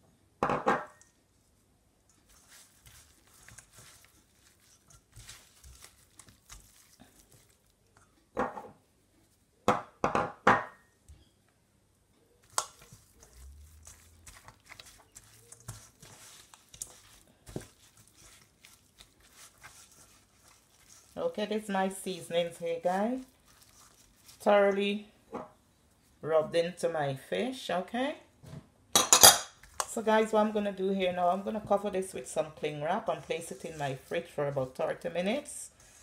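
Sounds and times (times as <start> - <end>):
hands rubbing wet fish: 2.2 - 8.0, 12.4 - 24.8, 33.0 - 36.0.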